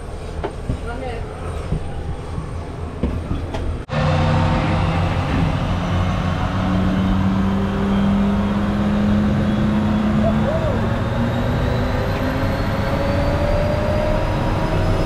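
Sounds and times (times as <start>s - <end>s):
engine droning hum: 3.3s - 15.0s.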